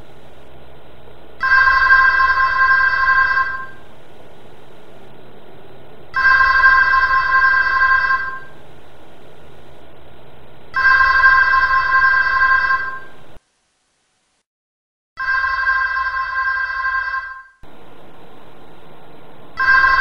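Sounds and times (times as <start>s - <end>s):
telephone ringing: 1.4s - 3.8s, 6.2s - 8.6s, 10.8s - 13.2s, 15.2s - 17.6s, 19.6s - 20.0s.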